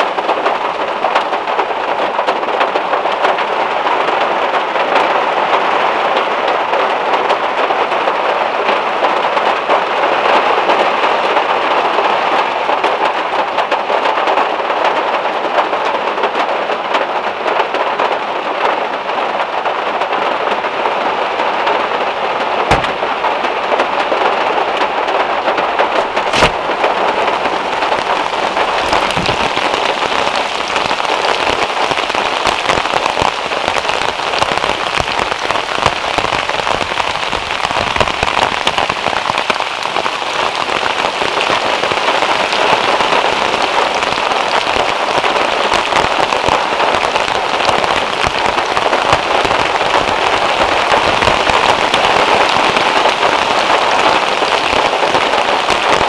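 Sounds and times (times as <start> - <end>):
rain falling on a car: 0.0 - 56.0
sharp knocks: 22.7 - 23.1.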